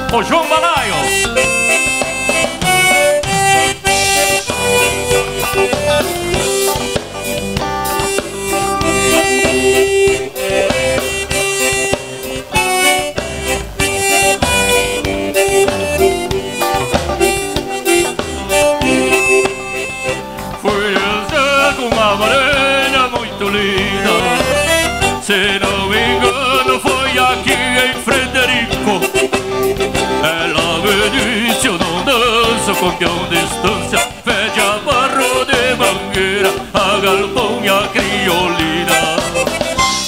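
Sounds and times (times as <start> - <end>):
button accordion dance tune: 0.0 - 40.0
person singing: 8.0 - 13.2, 13.8 - 40.0.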